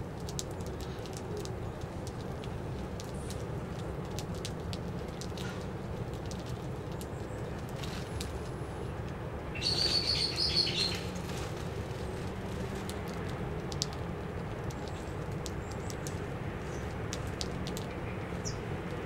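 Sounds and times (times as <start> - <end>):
sparrows chirping: 9.5 - 11.2, 14.7 - 17.0, 17.8 - 18.7.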